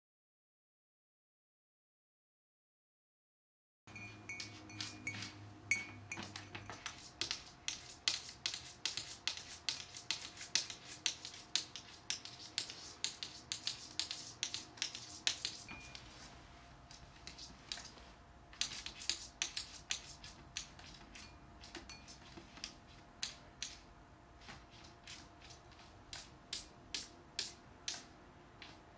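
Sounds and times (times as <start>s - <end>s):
cat claws clicking on wooden table: 6.2s - 15.7s, 18.6s - 21.8s.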